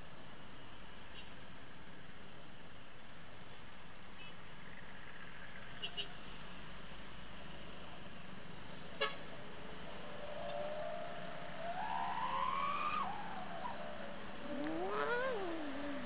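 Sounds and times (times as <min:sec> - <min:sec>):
motorcycle and road noise: 0:00.0 - 0:16.0
rising wailing tone: 0:10.2 - 0:16.0.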